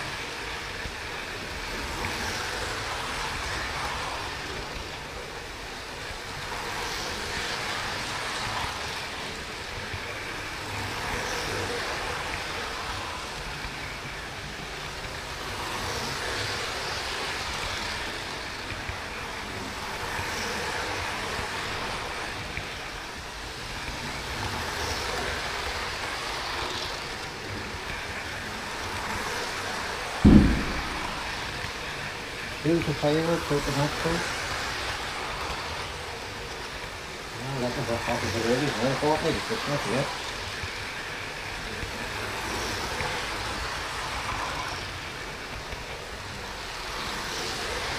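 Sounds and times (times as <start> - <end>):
model train wheels rattling: 0.0 - 47.9
sharp thump: 30.2 - 31.4.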